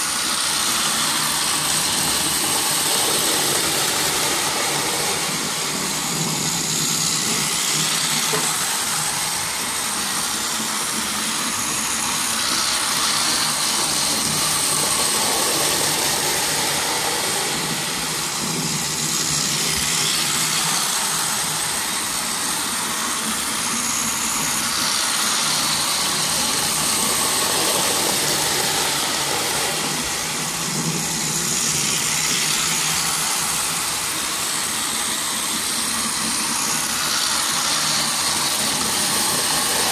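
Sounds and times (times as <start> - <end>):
toy train running on track: 0.0 - 39.9.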